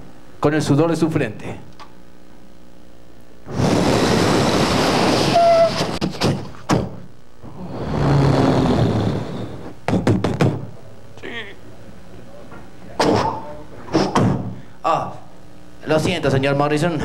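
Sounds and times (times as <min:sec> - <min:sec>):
rush of noise: 0:03.5 - 0:06.0
sharp thuds and knocks: 0:05.9 - 0:07.0, 0:09.9 - 0:10.7.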